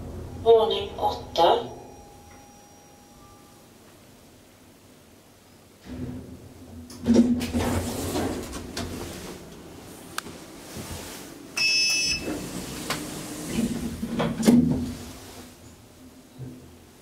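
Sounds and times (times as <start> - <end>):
lift doors sliding shut: 5.8 - 9.9, 10.6 - 15.6
lift button electronic beep: 11.6 - 12.4.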